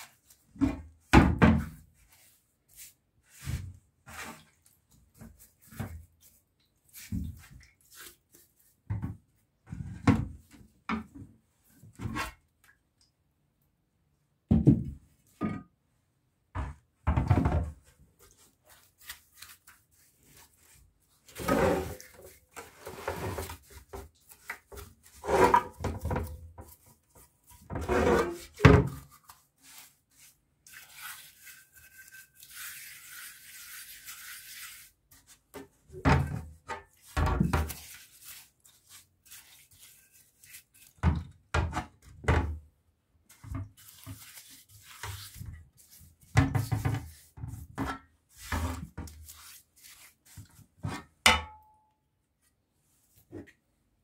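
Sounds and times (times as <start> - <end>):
brush scrubbing metal: 18.2 - 35.8, 36.8 - 41.0, 43.3 - 50.8.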